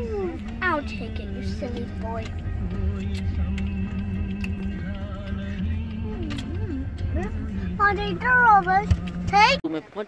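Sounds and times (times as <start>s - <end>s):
wavering melody: 0.0s - 8.8s.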